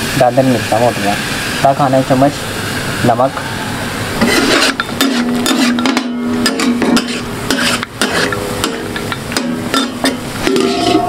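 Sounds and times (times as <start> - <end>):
food sizzling: 0.0 - 11.0
metal spatula scraping griddle: 4.2 - 11.0.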